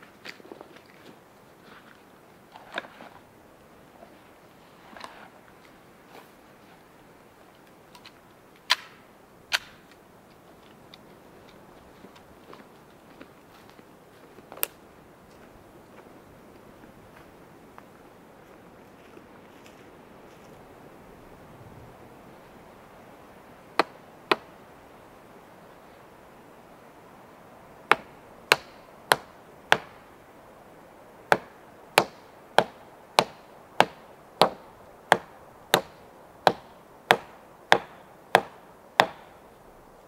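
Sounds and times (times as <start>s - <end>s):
hand tool striking wood: 27.9s - 30.0s, 31.3s - 39.3s.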